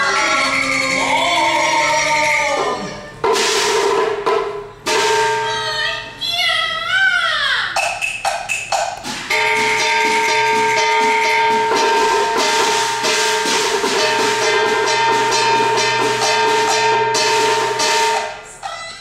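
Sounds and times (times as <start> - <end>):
percussion strokes: 0.0 - 6.1, 7.7 - 19.0
held melodic note: 9.3 - 18.5.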